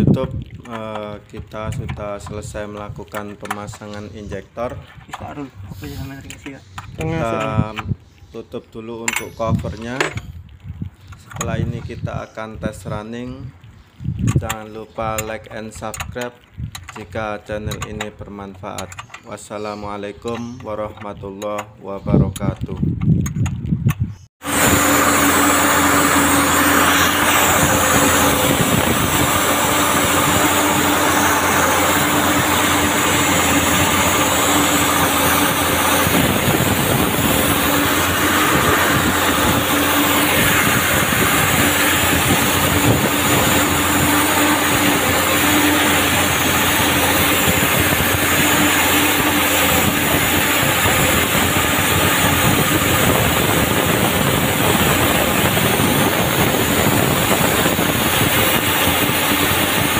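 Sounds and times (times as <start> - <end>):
excavator diesel engine running: 24.4 - 59.9
steady whine: 24.4 - 59.9.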